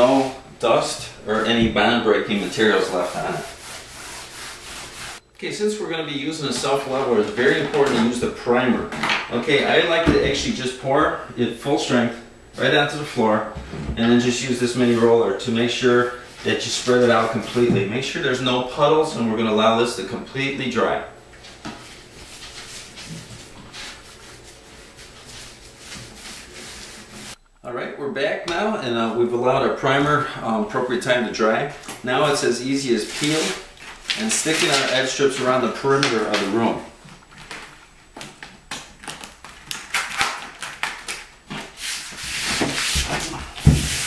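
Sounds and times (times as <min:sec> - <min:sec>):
paint roller strokes on floor: 0:00.0 - 0:05.2, 0:14.1 - 0:17.7, 0:21.3 - 0:27.4, 0:33.0 - 0:36.6, 0:41.6 - 0:44.0.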